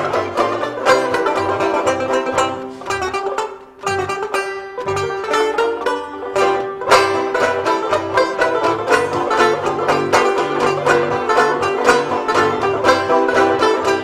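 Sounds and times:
bluegrass music: 0.0s - 14.0s
fast-picked banjo: 0.0s - 14.0s.

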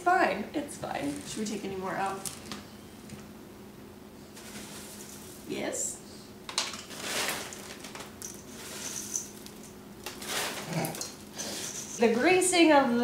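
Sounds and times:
cereal poured into metal bowl: 6.8s - 10.7s.

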